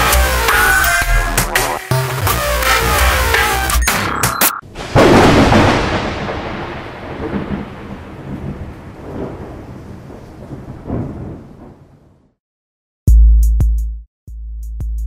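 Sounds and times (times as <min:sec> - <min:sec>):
thunder crack and rumble: 0:04.6 - 0:12.4.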